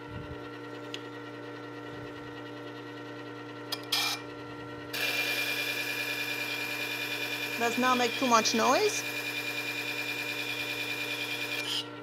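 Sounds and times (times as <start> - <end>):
sharpener motor humming: 3.7 - 4.3, 4.9 - 12.0.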